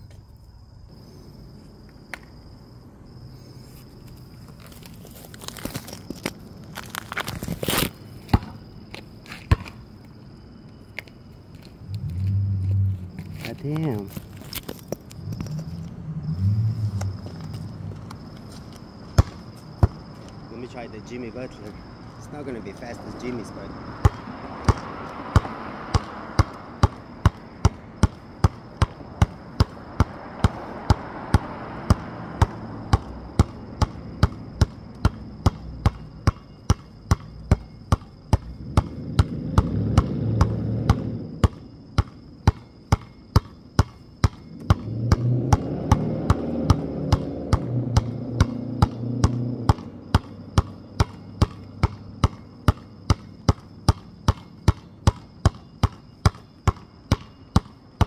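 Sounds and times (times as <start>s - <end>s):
basketball bouncing on hard ground: 4.1s - 10.2s, 17.0s - 20.4s, 23.9s - 58.0s
low rumble: 11.8s - 13.8s, 15.1s - 18.3s.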